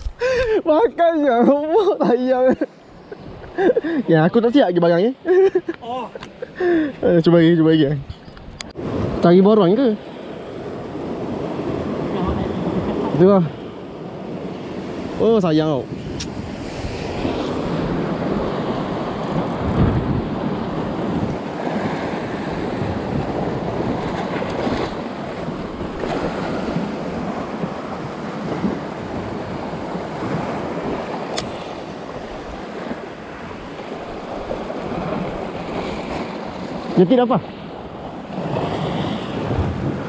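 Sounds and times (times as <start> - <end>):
sea waves: 0.0 - 40.0
wind buffeting microphone: 10.5 - 40.0.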